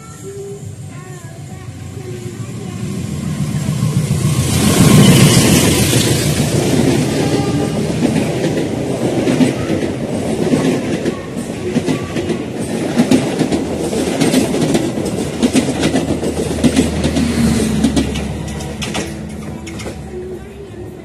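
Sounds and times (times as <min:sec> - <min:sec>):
train wheels clattering over rail joints: 0:04.6 - 0:20.5.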